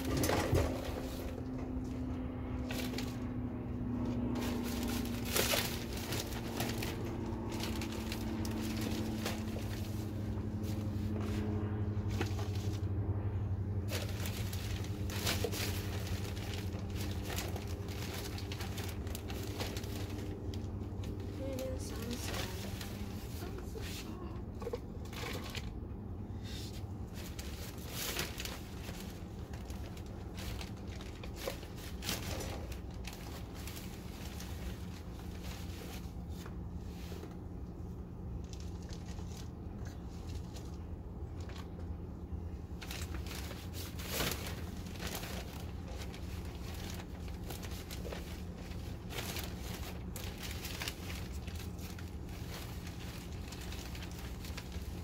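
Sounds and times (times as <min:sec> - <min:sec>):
steady low rumble: 0:00.0 - 0:55.0
thin plastic crinkling: 0:03.9 - 0:12.8, 0:13.8 - 0:25.8, 0:27.0 - 0:55.0
soil rustling: 0:13.8 - 0:25.5.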